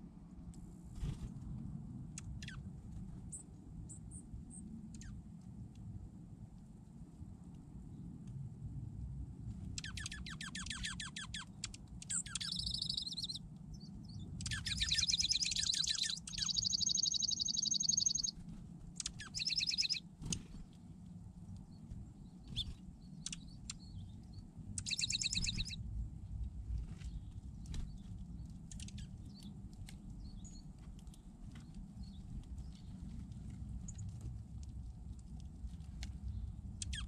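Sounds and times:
bird chirps: 2.2 - 2.6, 3.3 - 5.2, 9.7 - 20.7, 21.7 - 25.8, 27.0 - 29.5, 36.3 - 37.0
songbirds trilling: 2.2 - 2.7, 9.7 - 20.8, 21.4 - 25.9, 27.0 - 33.0, 36.2 - 37.0.

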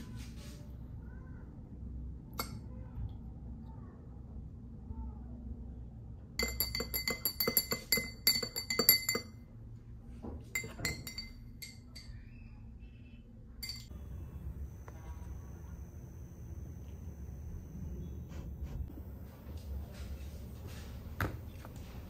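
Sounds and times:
metal spoon clinking in glass: 6.4 - 9.4, 10.6 - 12.3, 13.6 - 14.0
ringing glass clinks: 10.6 - 12.3, 13.6 - 13.9.

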